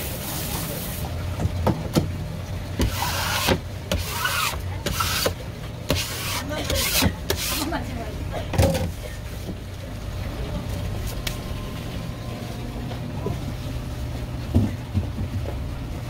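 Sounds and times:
blade scraping: 2.8s - 7.8s
low hum: 9.0s - 16.0s.

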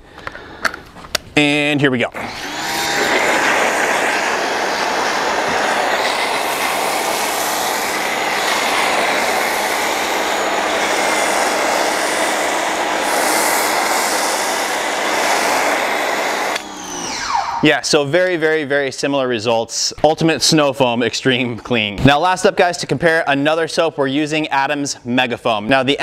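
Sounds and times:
pressure washer spraying foam: 2.2s - 17.6s.

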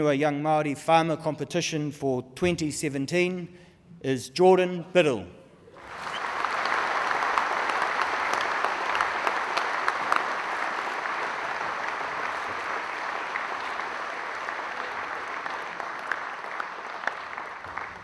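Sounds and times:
audience applauding: 5.8s - 18.0s.

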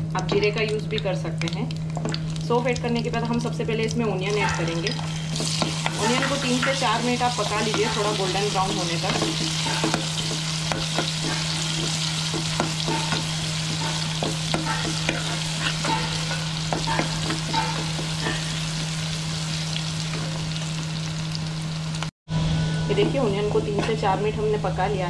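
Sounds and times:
onions sizzling in oil: 4.2s - 22.1s
spoon scraping a pan: 4.3s - 18.7s.

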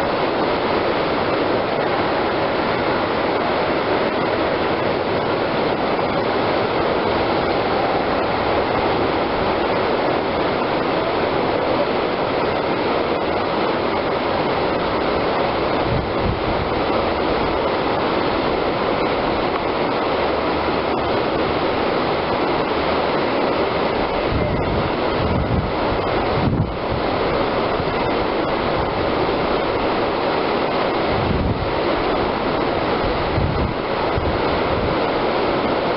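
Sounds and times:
whitewater rapid rushing: 0.0s - 35.9s.

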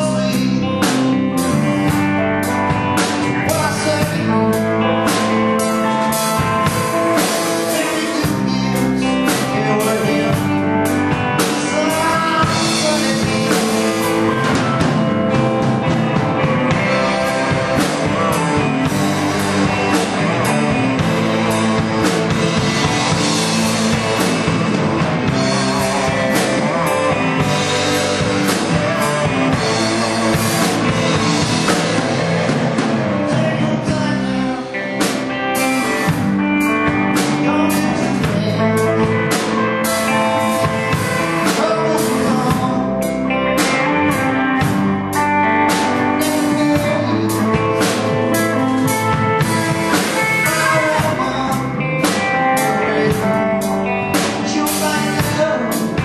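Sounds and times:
bass guitar: 0.0s - 56.0s
drum kit: 0.0s - 56.0s
electric guitars: 0.0s - 56.0s
keyboard: 0.0s - 56.0s.

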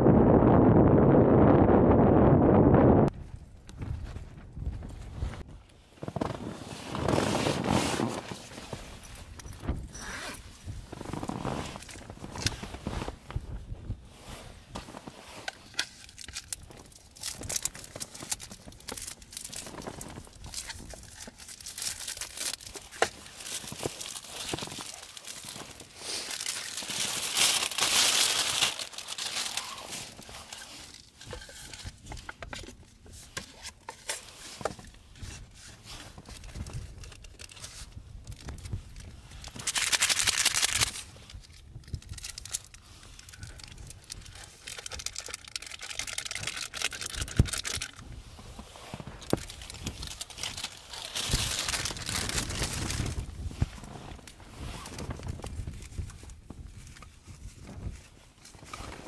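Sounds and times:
plastic packaging crinkling and tearing: 14.9s - 48.1s, 48.8s - 59.0s.

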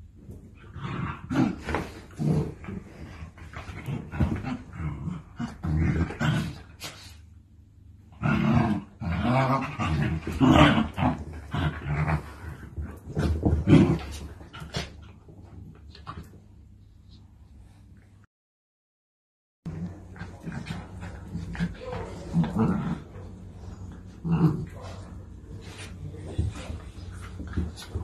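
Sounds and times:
dogs growling: 8.1s - 15.2s, 19.7s - 28.0s.

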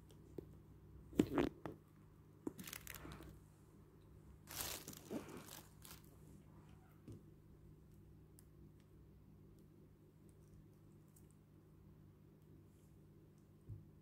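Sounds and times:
rustling and crinkling handling: 2.5s - 3.4s, 4.4s - 6.2s.

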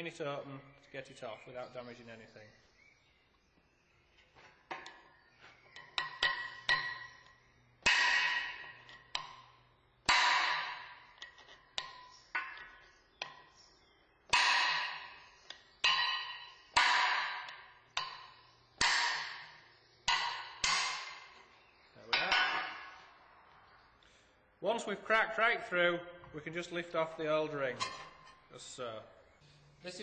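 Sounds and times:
hammer striking a chisel on metal: 5.7s - 9.5s, 11.8s - 13.5s, 15.8s - 21.4s.

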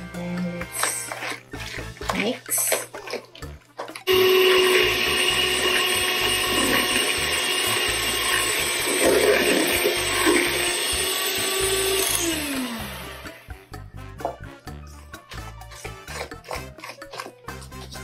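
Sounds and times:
mixer motor winding down: 4.1s - 13.5s
electric hand mixer running: 4.1s - 13.6s.

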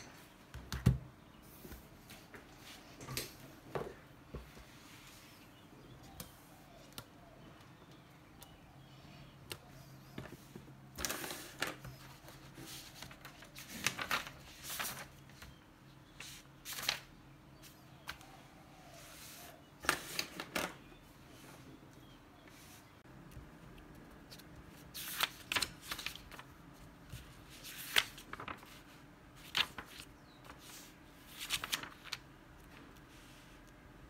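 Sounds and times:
paper pages rustling: 10.2s - 15.5s, 16.2s - 17.1s, 23.8s - 33.7s.

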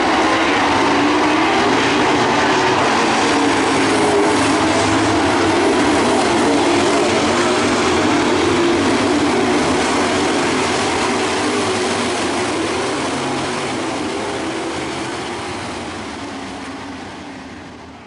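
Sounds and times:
race cars running at speed: 0.0s - 18.0s.

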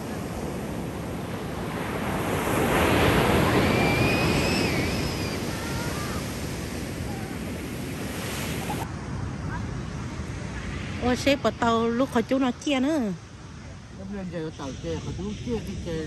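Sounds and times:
ocean wave washing out: 0.0s - 8.9s
surf wash: 0.0s - 16.0s
wind on microphone: 0.0s - 16.0s.

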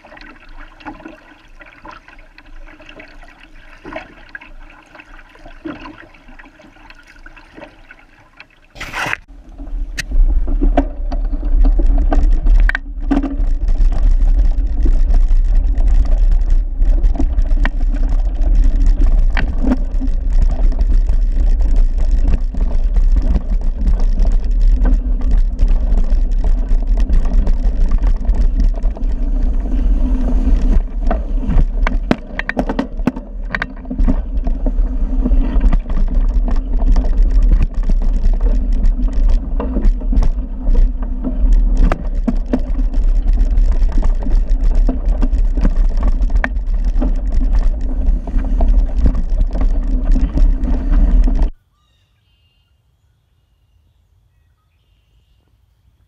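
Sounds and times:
camera jolting on bumpy trail: 8.8s - 51.6s.

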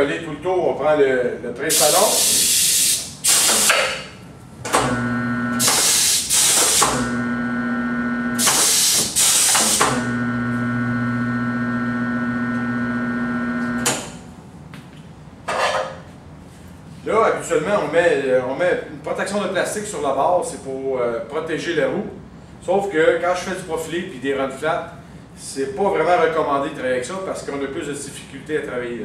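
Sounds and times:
compressed air hisses: 1.7s - 4.0s, 5.6s - 7.0s, 8.4s - 9.9s
motor humming: 4.6s - 14.1s.

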